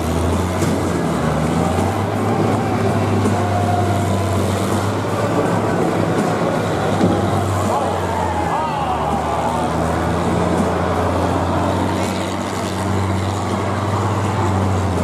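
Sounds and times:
combine harvester engines droning: 0:00.0 - 0:15.0.

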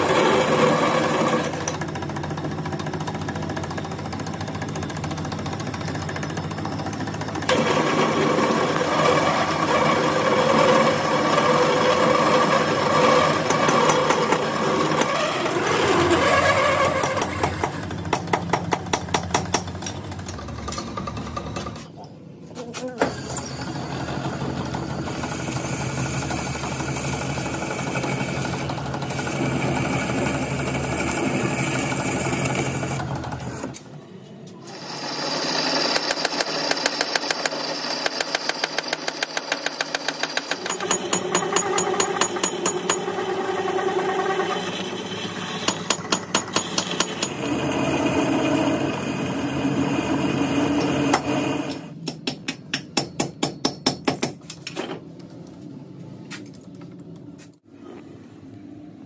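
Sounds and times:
metal lathe cutting steel: 0:07.5 - 0:17.4, 0:23.4 - 0:33.6, 0:34.6 - 0:51.9.

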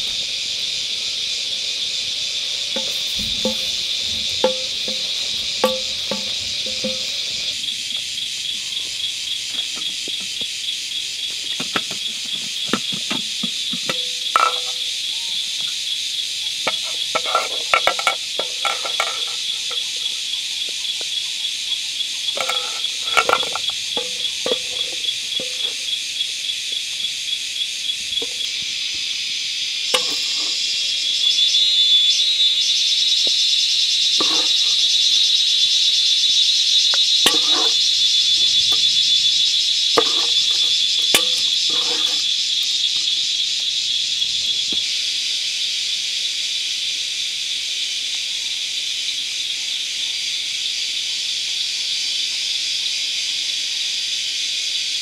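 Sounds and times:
insects chirring: 0:00.0 - 0:55.0
ladle knocking metal pot: 0:02.8 - 0:07.5, 0:12.6 - 0:14.9, 0:16.7 - 0:20.0, 0:22.4 - 0:25.9, 0:30.0 - 0:30.6, 0:34.2 - 0:34.8, 0:37.2 - 0:37.8, 0:40.0 - 0:42.3.

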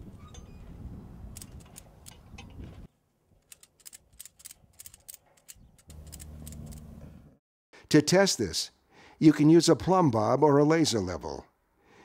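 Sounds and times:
ratchet strap clicking: 0:03.4 - 0:06.9.

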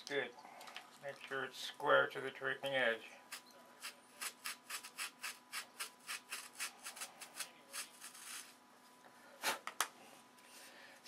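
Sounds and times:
sandpaper rubbing on wood: 0:03.8 - 0:08.5.

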